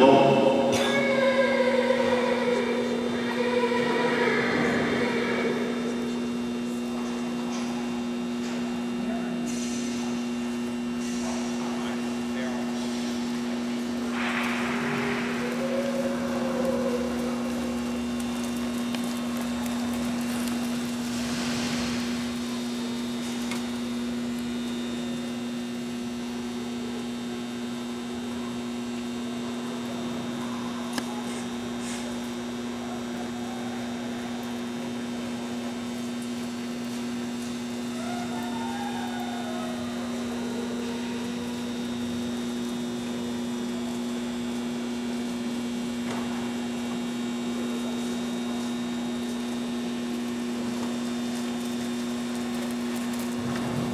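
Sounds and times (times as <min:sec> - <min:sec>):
electrical hum: 0:00.0 - 0:53.9
faint wavering sounds: 0:10.2 - 0:44.9.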